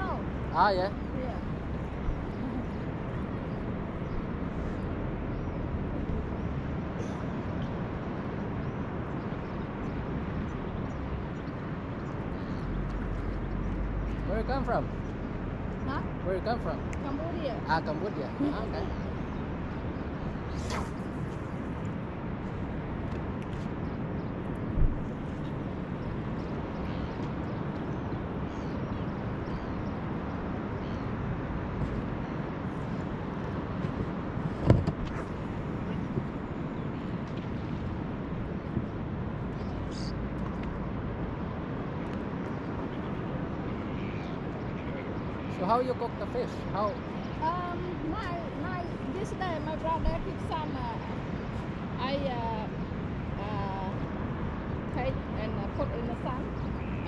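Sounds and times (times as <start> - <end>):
wind rumble on microphone: 0.0 - 57.0.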